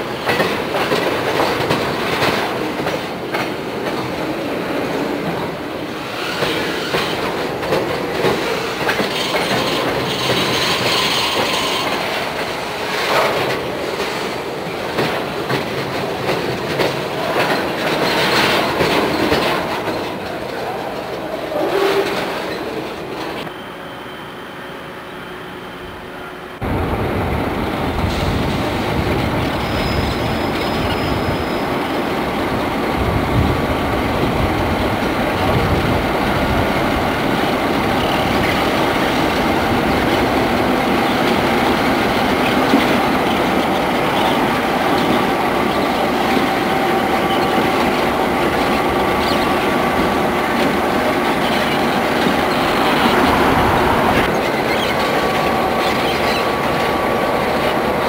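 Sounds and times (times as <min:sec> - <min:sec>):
wheel squeal: 0:06.0 - 0:07.2, 0:08.4 - 0:12.1, 0:29.4 - 0:32.0, 0:48.7 - 0:49.7, 0:51.3 - 0:56.9
wheels clacking over rails: 0:06.0 - 0:23.4, 0:32.5 - 0:58.0
diesel locomotive engines running: 0:34.1 - 0:58.0.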